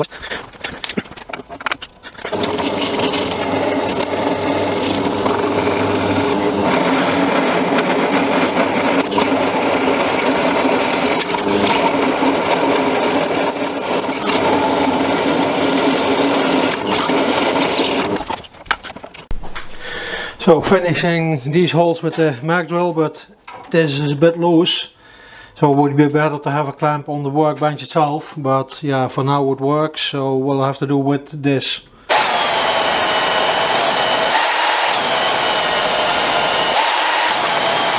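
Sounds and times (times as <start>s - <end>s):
drill press drilling steel: 2.2s - 18.4s, 32.1s - 37.9s.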